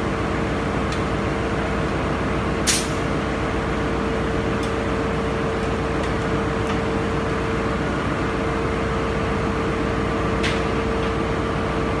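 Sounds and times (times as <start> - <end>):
engine-room machinery hum: 0.0 - 12.0.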